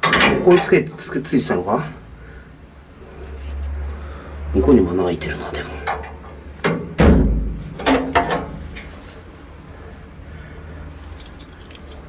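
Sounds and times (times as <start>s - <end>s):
metal bracket clanking: 0.0s - 0.8s, 5.9s - 8.9s.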